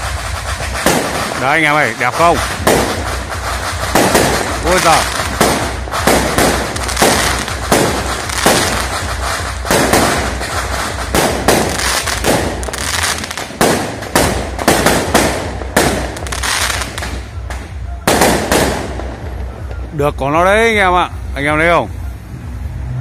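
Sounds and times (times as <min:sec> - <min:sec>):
firework shells bursting: 0:00.0 - 0:20.0
firework crackle: 0:00.0 - 0:21.7.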